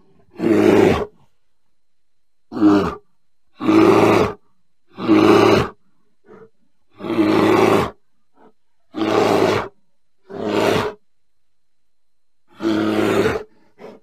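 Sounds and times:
bear roaring: 0:00.3 - 0:01.2, 0:02.5 - 0:11.0, 0:12.5 - 0:14.0.

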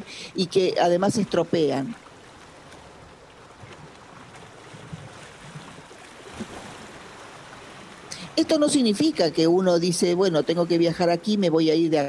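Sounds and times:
faint low bumps: 0:00.9 - 0:08.2.

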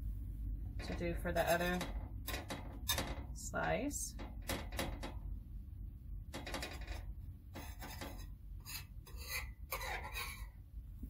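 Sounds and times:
low steady hum: 0:00.0 - 0:11.0
knife scraping butter in skillet: 0:07.6 - 0:10.5.

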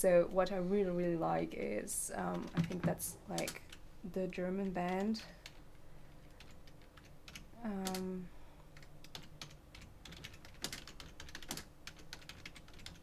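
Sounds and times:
computer keyboard typing: 0:02.3 - 0:03.8, 0:04.7 - 0:08.1, 0:08.7 - 0:13.0.

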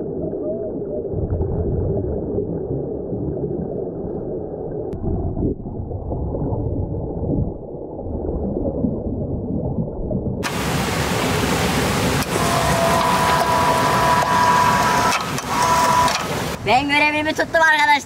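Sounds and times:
air bubbles gurgling: 0:00.0 - 0:11.7
muffled underwater rumble: 0:00.0 - 0:14.8.

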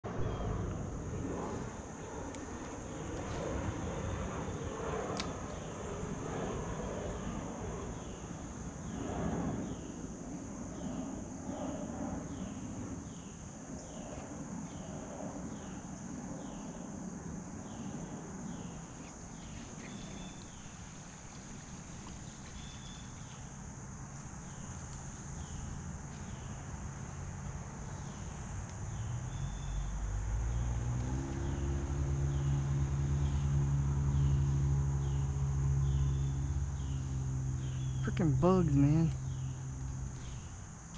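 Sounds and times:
engine humming: 0:00.0 - 0:08.2, 0:19.4 - 0:40.9
insect chorus chirping: 0:00.0 - 0:40.9.

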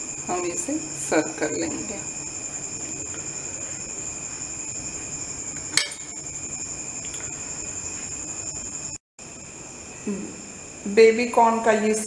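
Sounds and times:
metal spoon clinking on pot: 0:05.7 - 0:06.2.

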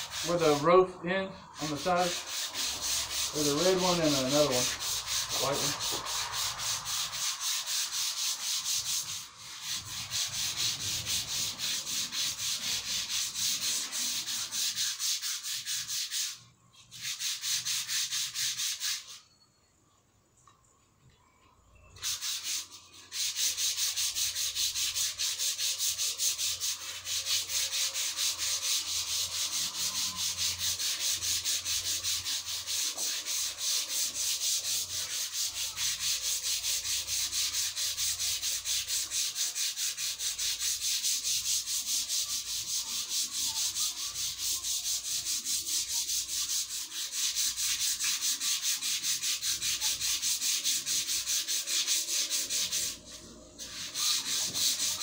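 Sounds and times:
sandpaper scratching strokes: 0:00.0 - 0:19.2, 0:22.0 - 0:55.0.

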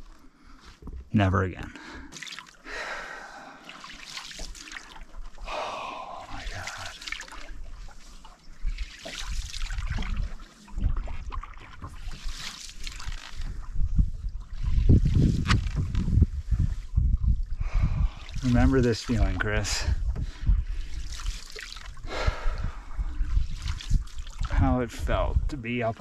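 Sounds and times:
water dripping off paddle: 0:02.1 - 0:02.7, 0:03.6 - 0:13.7
paddle swishing through water: 0:02.1 - 0:24.5.

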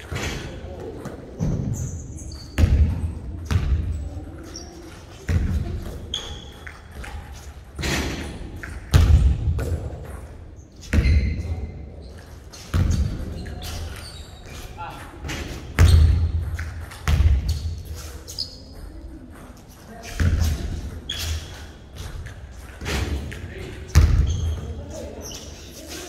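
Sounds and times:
short high squeaks: 0:06.1 - 0:06.9, 0:18.0 - 0:18.8, 0:21.1 - 0:21.7.

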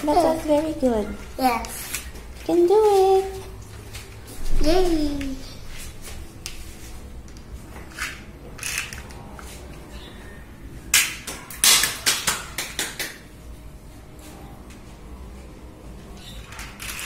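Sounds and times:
plastic figure clattering on tiles: 0:08.0 - 0:09.2.

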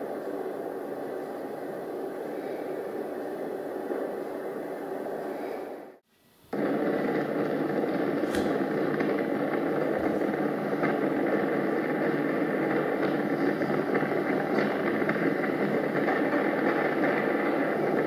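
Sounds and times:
roar of burning gas: 0:06.6 - 0:15.2.

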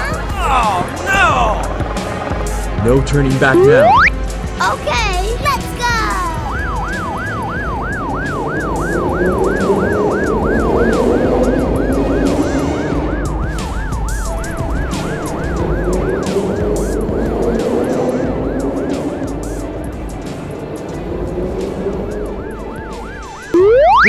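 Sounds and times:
cartoon ambulance siren yelp: 0:03.5 - 0:04.1, 0:05.5 - 0:19.3, 0:22.7 - 0:24.0
low tone: 0:23.5 - 0:24.0.

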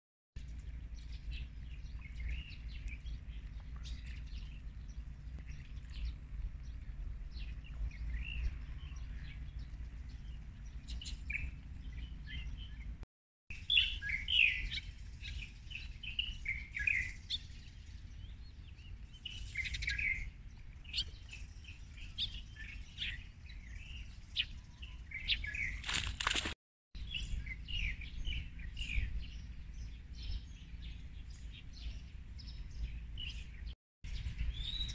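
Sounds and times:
birds chirping and singing: 0:00.5 - 0:13.0, 0:13.6 - 0:34.9
steady low rumble: 0:00.5 - 0:13.0.

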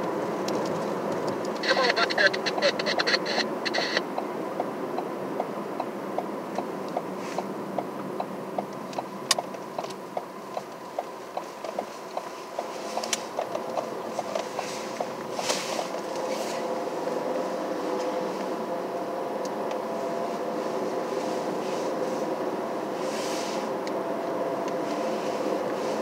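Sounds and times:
turn signal ticking: 0:00.0 - 0:16.3
vehicle engine hum: 0:00.0 - 0:26.0.

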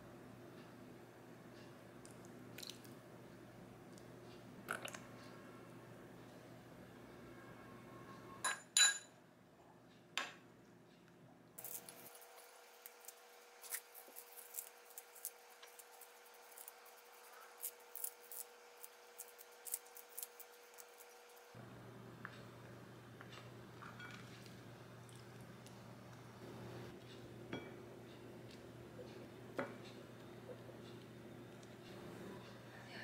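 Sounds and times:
metal spoon clinking ceramic bowl: 0:08.4 - 0:09.1
salad leaves tearing: 0:11.6 - 0:21.5.

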